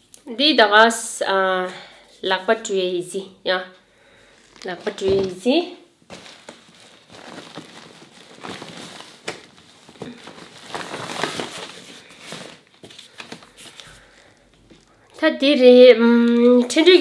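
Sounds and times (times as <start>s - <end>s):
fabric bag and packaging rustling: 4.1s - 15.1s.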